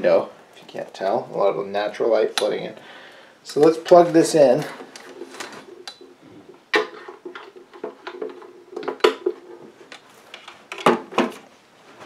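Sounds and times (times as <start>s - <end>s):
faint steady hum: 0.0s - 12.0s
plastic unit handling knocks: 10.7s - 11.4s.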